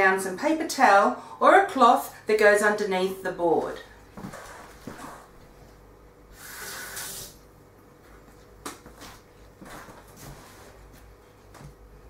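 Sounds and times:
kitchen tap running: 6.3s - 7.5s.

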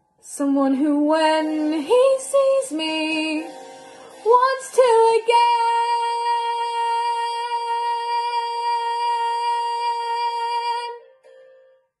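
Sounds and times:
girl singing: 0.3s - 3.5s, 4.2s - 11.0s.

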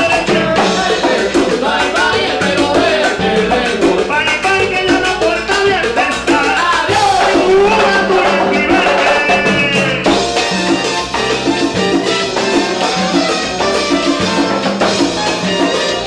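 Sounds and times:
man singing: 0.0s - 10.4s
maracas: 0.0s - 16.0s
salsa band playing: 0.0s - 16.0s.

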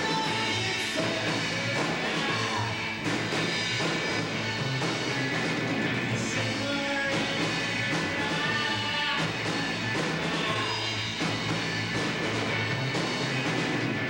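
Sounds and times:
bass line: 0.0s - 14.0s
drum kit: 0.0s - 14.0s
electric guitars: 0.0s - 14.0s.

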